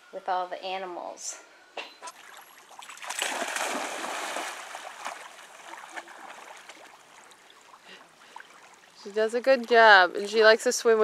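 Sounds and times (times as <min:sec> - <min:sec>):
quiet water sounds: 0:02.0 - 0:11.0
dog splashing in water: 0:02.2 - 0:07.0.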